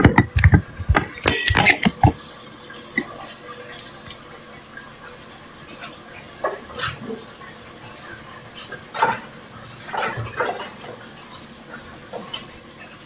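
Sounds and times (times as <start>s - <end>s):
steady kitchen hiss: 0.0s - 13.0s.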